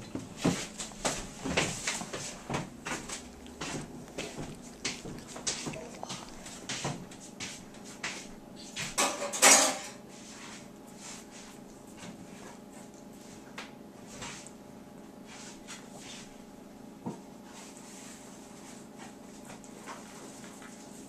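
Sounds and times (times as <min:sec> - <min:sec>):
dishes and cutlery clattering: 0:09.0 - 0:10.0.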